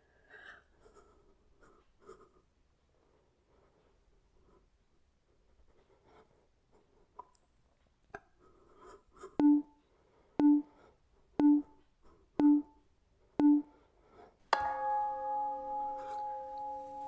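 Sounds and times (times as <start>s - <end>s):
short timer beeps: 9.4s - 9.7s, 10.4s - 10.7s, 11.4s - 11.8s, 12.4s - 12.8s, 13.4s - 13.7s.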